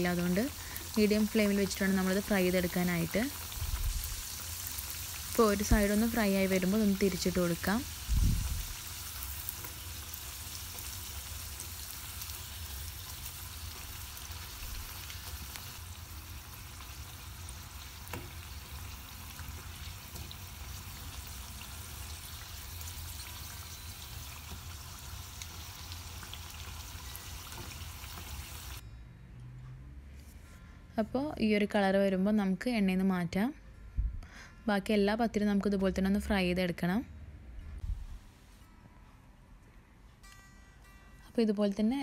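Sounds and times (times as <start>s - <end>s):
hot oil sizzling: 0.0s - 28.8s.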